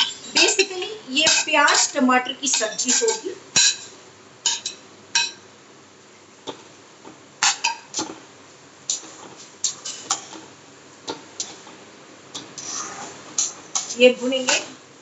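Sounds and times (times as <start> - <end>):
spoon scraping and knocking a pan: 1.2 - 5.4, 7.4 - 8.2, 8.9 - 10.5, 12.4 - 14.7.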